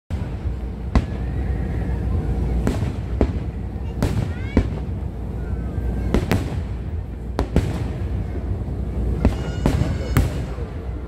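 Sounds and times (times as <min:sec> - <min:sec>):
steady low rumble: 0:00.1 - 0:11.0
faint firework whistle: 0:00.9 - 0:03.6, 0:09.1 - 0:11.0.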